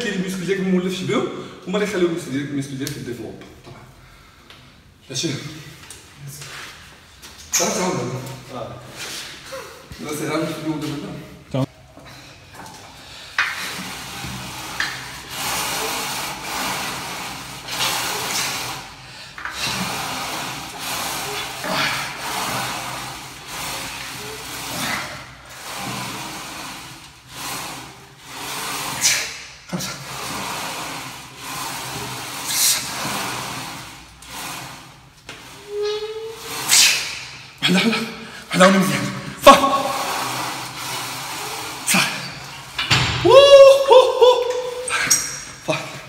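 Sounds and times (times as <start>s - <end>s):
man's forceful hissing breaths: 15.3s - 34.8s.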